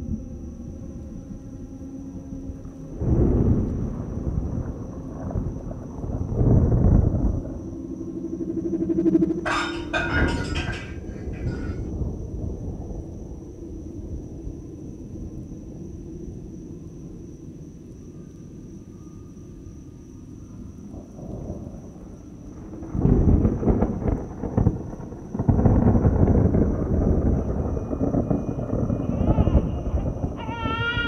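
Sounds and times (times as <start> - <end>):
thunder rumbling and crashing: 2.9 - 7.8, 8.7 - 14.3, 21.0 - 31.0.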